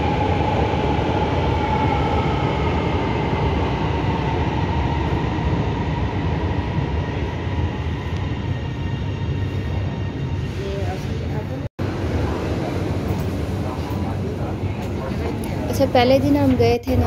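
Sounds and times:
metro train rumble with whine: 0:00.0 - 0:17.0.

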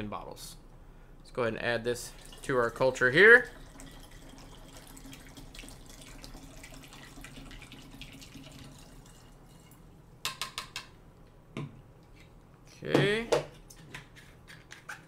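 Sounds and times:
liquid trickling and dripping: 0:02.0 - 0:09.8.

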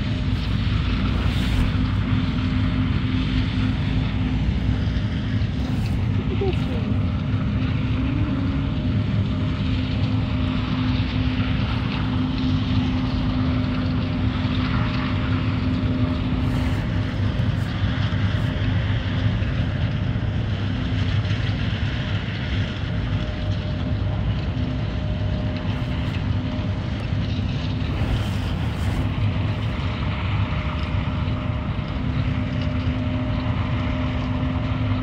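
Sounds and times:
rushing noise: 0:00.0 - 0:14.4
engine hum: 0:00.0 - 0:35.0.

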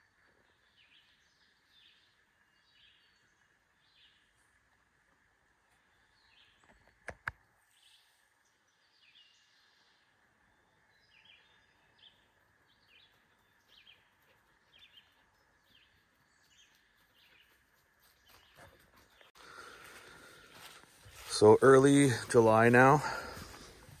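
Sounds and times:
bird chirping: 0:05.7 - 0:20.4.

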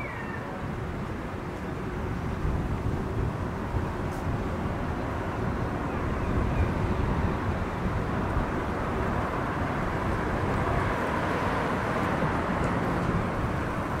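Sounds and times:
road traffic: 0:00.0 - 0:14.0.

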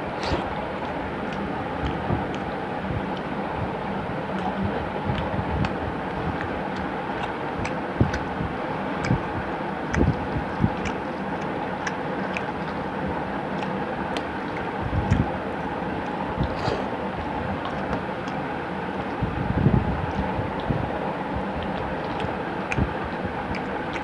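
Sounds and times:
background hum and hiss: 0:00.0 - 0:24.0
chewing: 0:00.1 - 0:02.5, 0:04.3 - 0:08.3, 0:09.0 - 0:09.3, 0:09.9 - 0:12.9, 0:13.5 - 0:19.2, 0:21.5 - 0:24.0.

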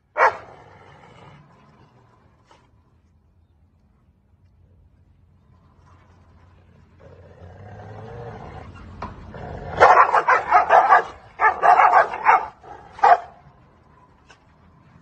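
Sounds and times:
dogs snarling barks: 0:00.2 - 0:01.4, 0:09.3 - 0:13.5
dogs growling: 0:00.4 - 0:02.9, 0:06.8 - 0:15.0.

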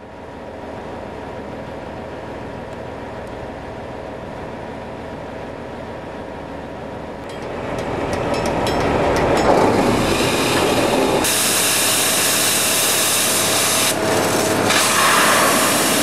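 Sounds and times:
pump engine running: 0:07.5 - 0:16.0.

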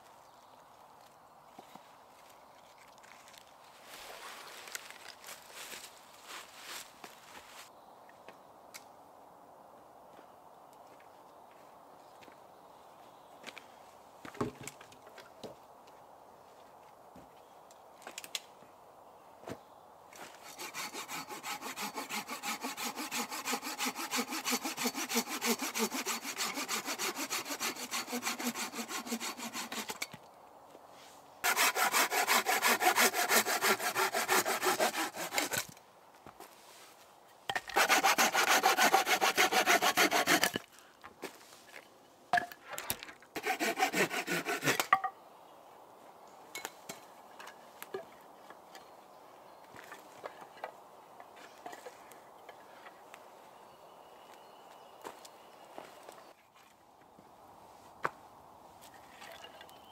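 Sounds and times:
hand saw cutting wood: 0:20.2 - 0:30.1, 0:31.4 - 0:35.8, 0:37.5 - 0:40.7, 0:43.4 - 0:45.0.

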